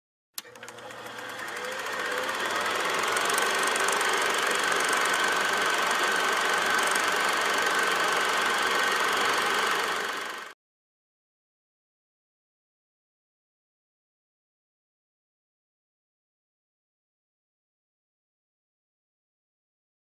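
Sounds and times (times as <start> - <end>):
film projector whirring and rattling: 0.4 - 10.6.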